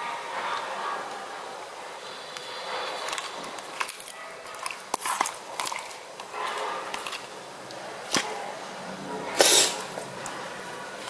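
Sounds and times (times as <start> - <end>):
slime squelching: 2.4 - 11.0.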